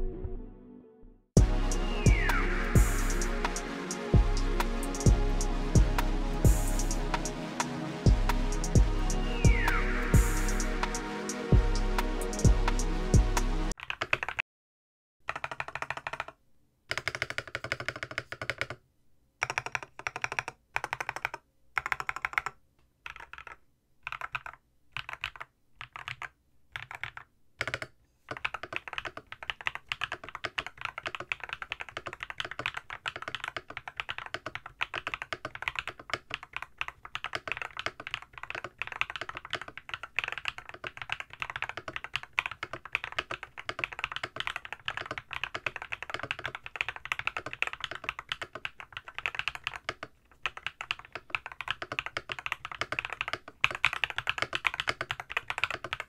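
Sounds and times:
typing on mechanical keyboard: 13.8 - 14.4, 15.2 - 18.8, 19.4 - 56.0.

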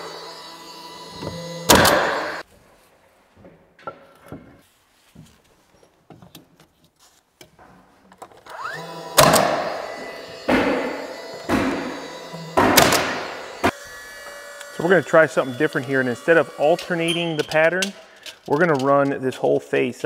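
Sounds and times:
nail gun whine: 0.0 - 2.4, 8.4 - 18.9
nail gun bang: 1.2 - 2.4, 9.1 - 13.8.

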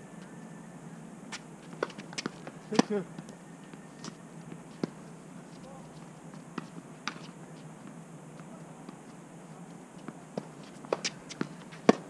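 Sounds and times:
tennis ball bouncing: 1.3 - 3.4, 4.0 - 5.1, 6.0 - 9.1, 10.0 - 12.0
footwork on court: 1.3 - 12.0
racket striking ball: 1.8 - 3.0, 10.4 - 12.0.

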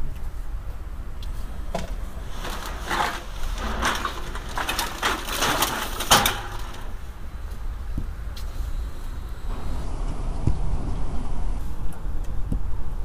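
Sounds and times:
low steady rumble: 0.0 - 13.0
plastic sack crinkling: 2.0 - 7.2.

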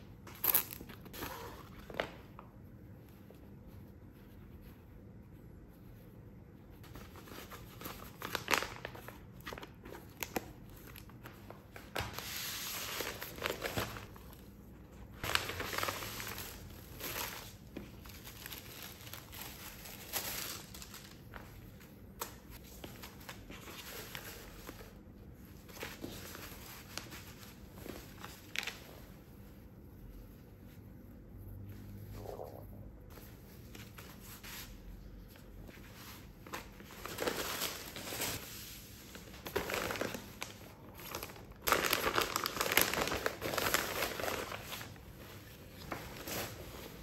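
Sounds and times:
plastic bags crinkling: 39.4 - 45.0.

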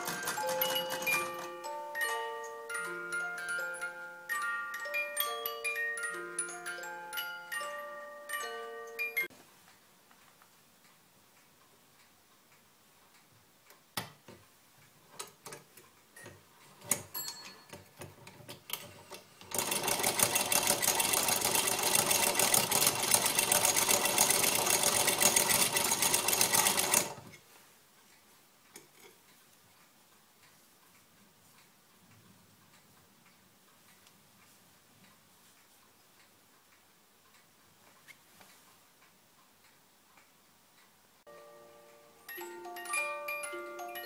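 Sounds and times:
sewing machine clattering: 0.0 - 1.4, 17.6 - 27.3.

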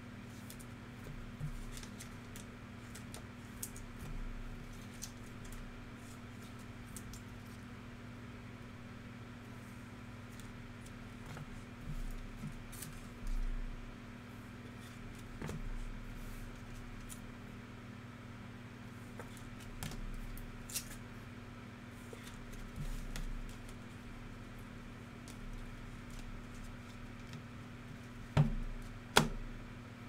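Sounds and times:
cards clicking and rustling: 1.4 - 3.9, 4.6 - 5.6.

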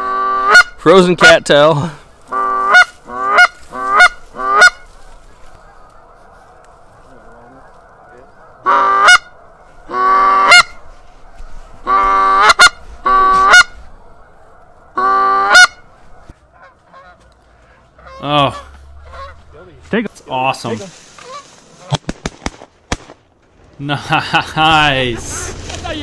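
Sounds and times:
goose call honks and clucks: 0.0 - 0.9, 2.2 - 10.9, 11.8 - 19.6, 21.1 - 21.6.

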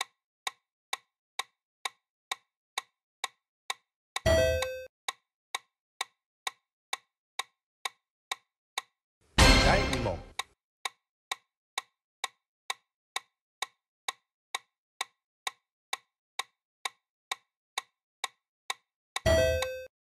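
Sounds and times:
clock ticking: 0.0 - 10.5, 11.8 - 19.9
short ringing sound effect: 9.4 - 10.3.

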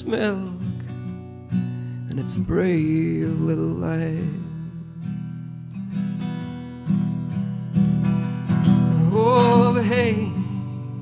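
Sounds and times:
person singing with vibrato: 0.0 - 0.8, 8.9 - 10.6
acoustic guitar: 0.0 - 11.0.

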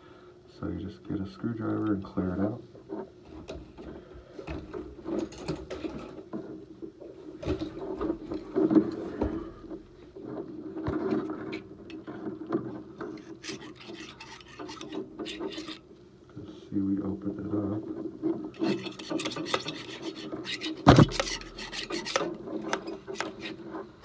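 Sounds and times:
metal valve scraping and rubbing: 13.0 - 15.9, 18.5 - 24.0.

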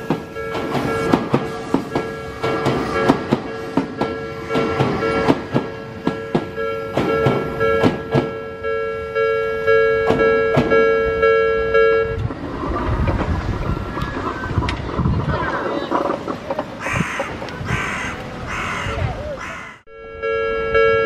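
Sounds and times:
train wheels clattering over rail joints: 0.0 - 8.4, 10.0 - 10.9, 12.2 - 17.6
level-crossing warning bell: 0.0 - 12.3, 19.8 - 21.0.

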